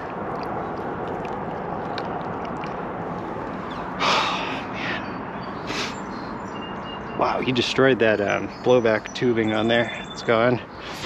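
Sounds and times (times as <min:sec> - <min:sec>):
steady background noise: 0:00.0 - 0:11.0
person gasping breath: 0:04.0 - 0:05.1.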